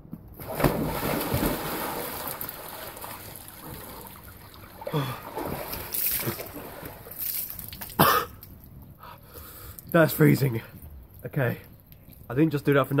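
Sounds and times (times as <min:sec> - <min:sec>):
water splashing in pool: 0:00.4 - 0:08.0.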